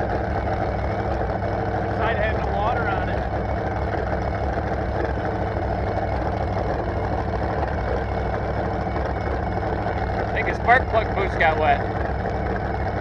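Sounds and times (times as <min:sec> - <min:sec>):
boat engine idling: 0:00.0 - 0:13.0.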